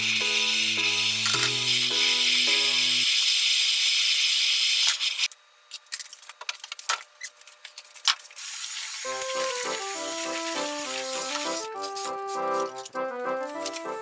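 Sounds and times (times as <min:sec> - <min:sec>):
background music: 0:00.0 - 0:03.0, 0:09.1 - 0:14.0.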